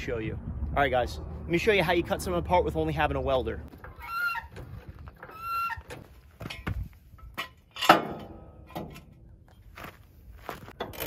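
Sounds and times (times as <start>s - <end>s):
metal knocks and scrapes: 3.8s - 9.7s
loud metal clank: 6.4s - 9.2s.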